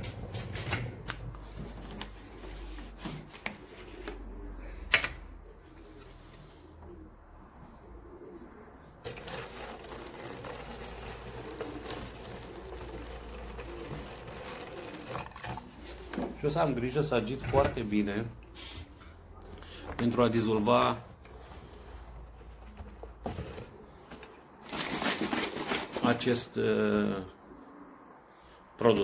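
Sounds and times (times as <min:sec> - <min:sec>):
pigeons cooing: 0:00.8 - 0:25.8, 0:26.7 - 0:28.6
water pouring into bottle: 0:09.0 - 0:16.1.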